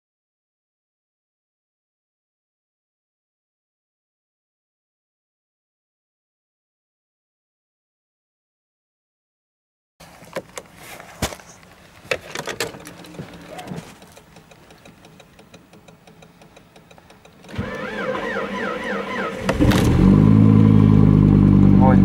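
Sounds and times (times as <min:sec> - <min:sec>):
sharp clicks and knocks: 0:12.0 - 0:17.7
starter motor cranking engine: 0:12.3 - 0:21.7.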